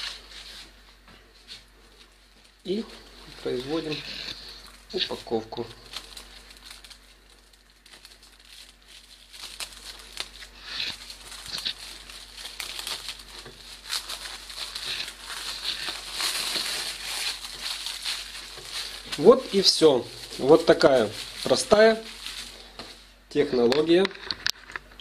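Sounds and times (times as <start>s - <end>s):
plastic film crinkling: 1.4s - 24.5s.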